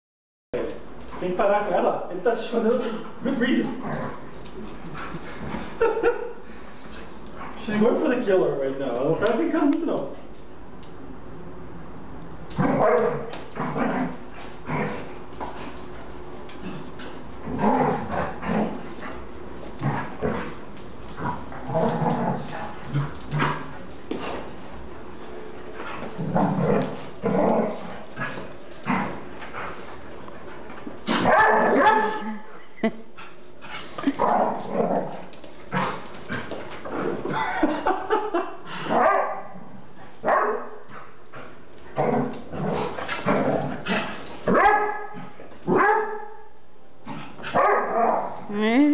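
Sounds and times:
dogs barking in play: 12.4 - 32.5, 33.1 - 37.5, 38.6 - 48.5
dogs yipping and barking: 31.1 - 32.2, 38.9 - 39.4, 43.1 - 46.4, 47.4 - 48.3.

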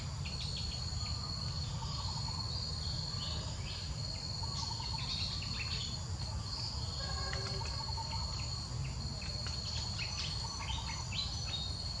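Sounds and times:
insect chorus: 0.0 - 12.0.

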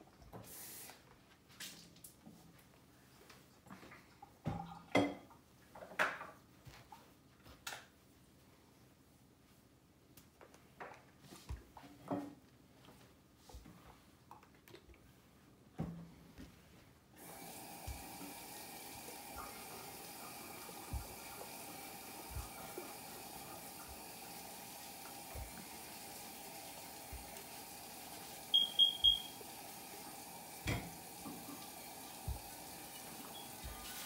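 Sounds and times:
steam iron hissing: 17.2 - 29.6
short high beeps: 28.5 - 29.3.

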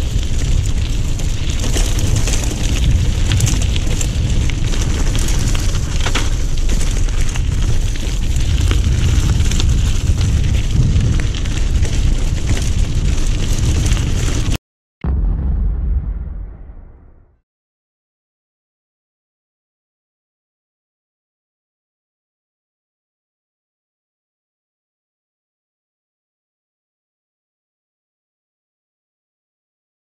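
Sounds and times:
bike tyres on loose gravel: 0.0 - 14.6
stones and bike rattling: 0.0 - 14.6
wind buffeting microphone: 0.0 - 16.8.

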